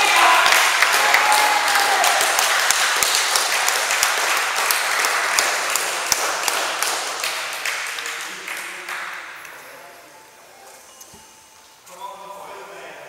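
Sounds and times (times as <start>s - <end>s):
small crowd applauding: 0.0s - 9.6s.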